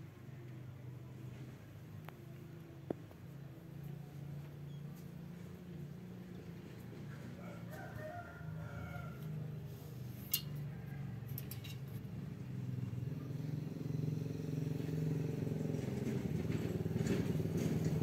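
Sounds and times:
vehicle engine humming: 0.0 - 18.0.

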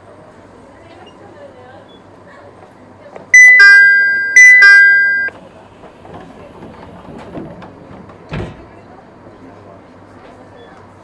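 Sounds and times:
electronic two-note chime: 3.4 - 5.3.

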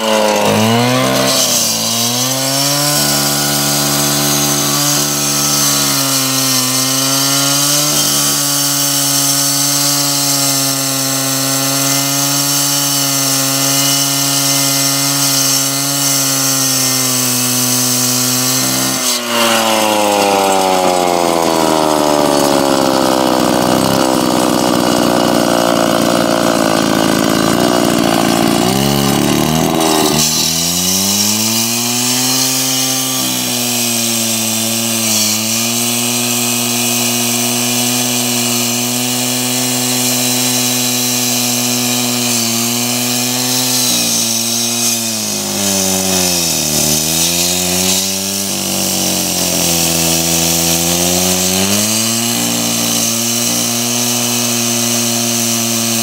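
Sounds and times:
cut-off saw cutting concrete: 0.0 - 56.0.

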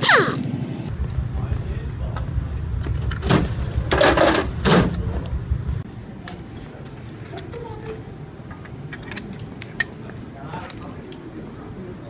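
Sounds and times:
low hum: 0.3 - 6.8
metal parts clattering: 7.2 - 10.0.

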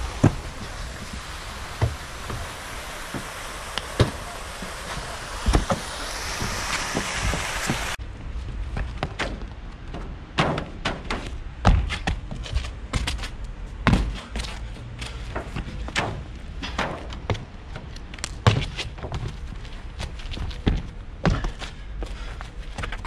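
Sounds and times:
heavy landing thuds: 0.0 - 8.0, 8.6 - 13.2, 13.8 - 14.6, 20.3 - 22.2
footsteps running on roof: 4.0 - 23.0.

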